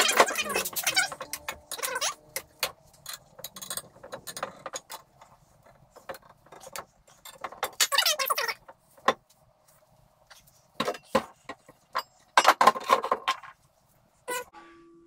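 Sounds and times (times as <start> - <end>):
metal bolts and wrench clinking: 0.0 - 5.1.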